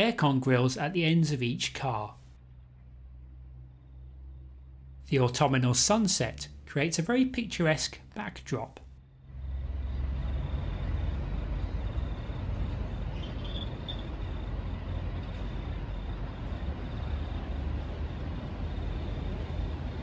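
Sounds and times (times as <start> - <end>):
city background noise: 0.0 - 20.0
train rumbling past: 9.0 - 20.0
short high squeak: 13.2 - 14.1.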